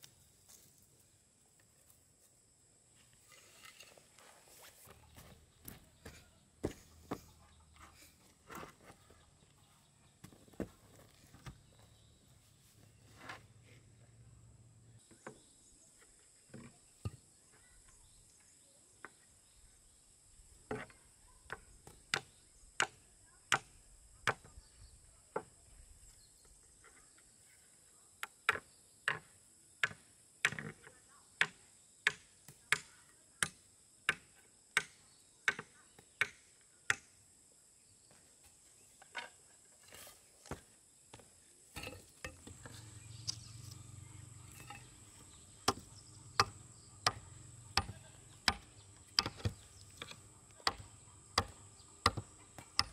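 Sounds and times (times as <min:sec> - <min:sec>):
insects trilling: 0:35.0 - 0:52.9
hand tool striking: 0:44.4 - 0:52.9.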